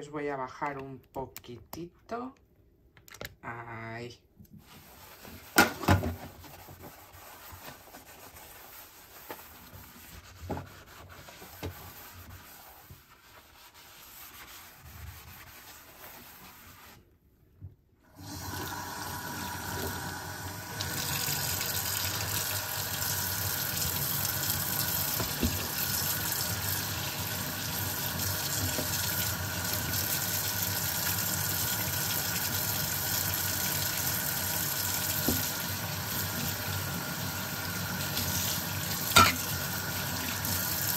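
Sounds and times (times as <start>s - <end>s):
sponge scrubbing steel sink: 4.6s - 17.2s, 20.8s - 40.9s
tap running water into sink: 18.2s - 37.0s, 37.9s - 40.9s.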